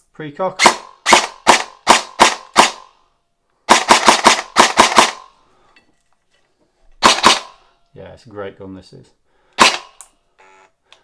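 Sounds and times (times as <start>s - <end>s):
airsoft rifle shots: 0.6s - 2.9s, 3.7s - 5.3s, 7.0s - 7.6s, 9.6s - 10.0s.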